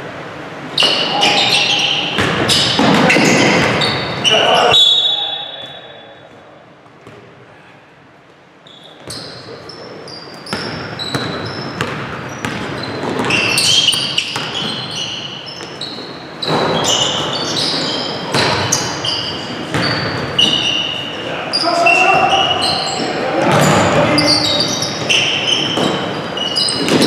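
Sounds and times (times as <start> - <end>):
shoes squeaking on gym floor: 0.8 - 5.8, 8.6 - 27.0
basketball dribbling: 10.5 - 14.9, 18.3 - 18.8, 19.7 - 20.7.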